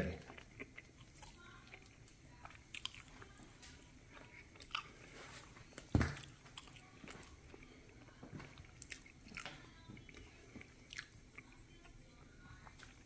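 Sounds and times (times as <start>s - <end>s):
thump on counter: 5.9s - 6.2s.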